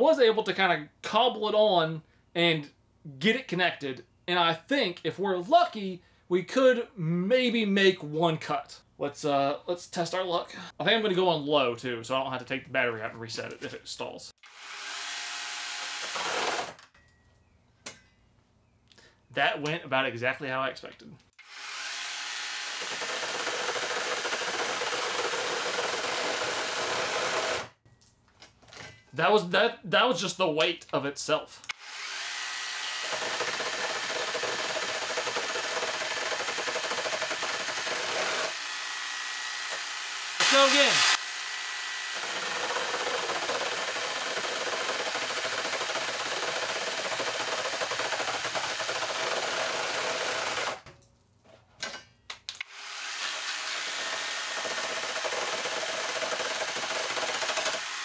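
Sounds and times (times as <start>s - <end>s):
chainsaw chain cutting wood: 14.4s - 17.0s, 21.4s - 27.8s, 31.7s - 50.9s, 52.6s - 58.0s.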